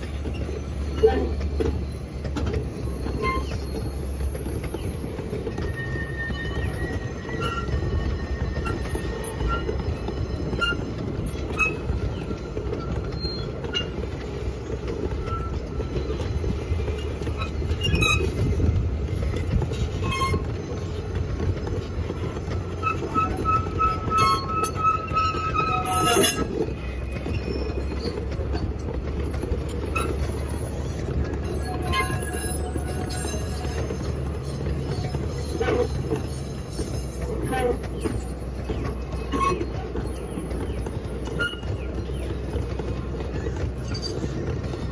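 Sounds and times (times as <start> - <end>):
high wheel squeals: 0.0 - 44.9
train wheels rumbling on track: 0.0 - 44.9.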